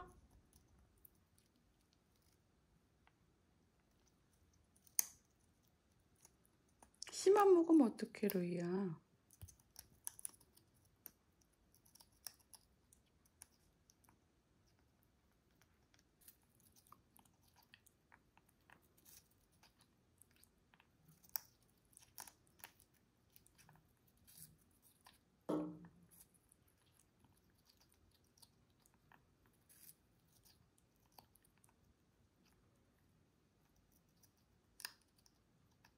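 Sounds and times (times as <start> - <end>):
parrot beak crunching fruit: 9.2 - 32.6.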